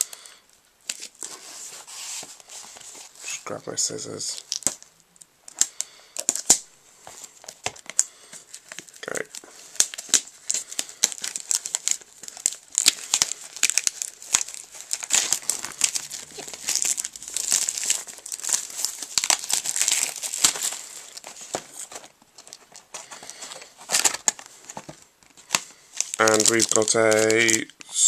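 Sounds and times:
plastic shrink-wrap crinkling: 0.0s - 28.0s.

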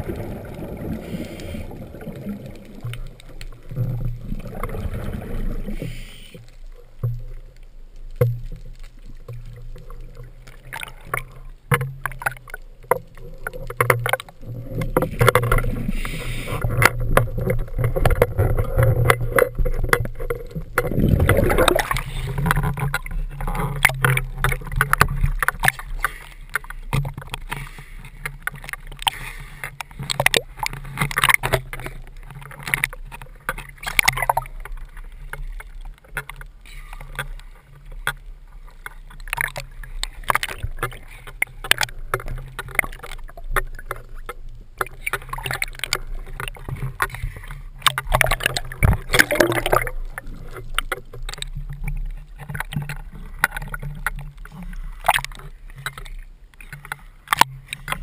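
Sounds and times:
exhaled bubbles rushing underwater: 0.0s - 7.7s, 8.5s - 27.5s, 38.7s - 56.0s.

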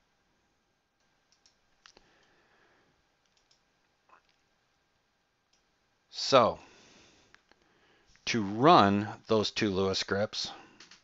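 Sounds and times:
computer mouse clicks: 1.0s - 2.3s, 3.2s - 4.4s.

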